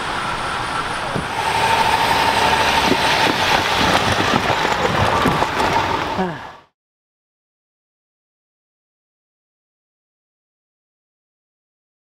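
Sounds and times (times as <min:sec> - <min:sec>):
car engine and tyre noise: 0:00.0 - 0:06.7
wheels knocking on crossing boards: 0:02.4 - 0:06.2.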